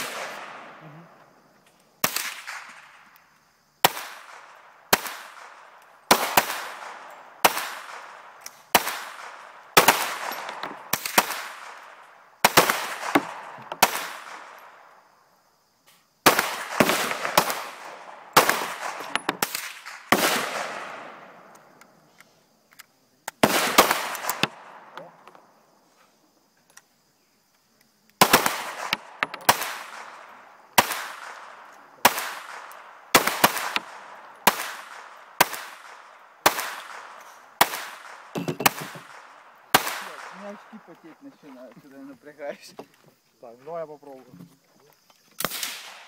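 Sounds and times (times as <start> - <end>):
pistol shots with echo: 0.0 - 0.8, 2.0 - 3.0, 3.8 - 14.9, 16.2 - 21.6, 23.4 - 25.0, 28.2 - 40.8, 45.4 - 46.0.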